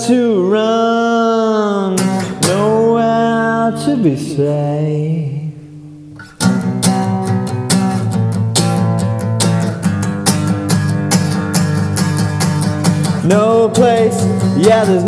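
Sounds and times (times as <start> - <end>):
guitars strumming: 1.8 - 15.0
instrumental rock music: 2.0 - 2.9, 6.1 - 15.0.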